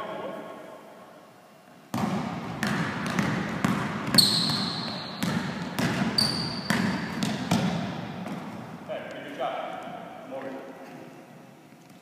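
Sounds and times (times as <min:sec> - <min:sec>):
basketball dribbling: 0:01.9 - 0:08.8
sneakers squeaking on court: 0:02.0 - 0:08.8.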